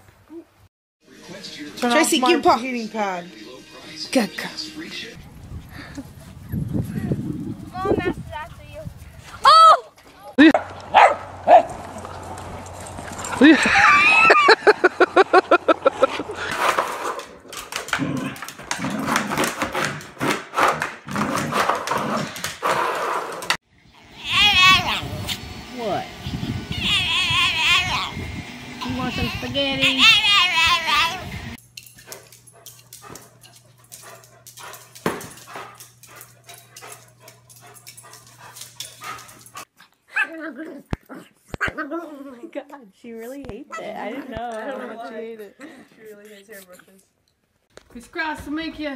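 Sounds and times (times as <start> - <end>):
dog grumbling: 17.9 - 19.3.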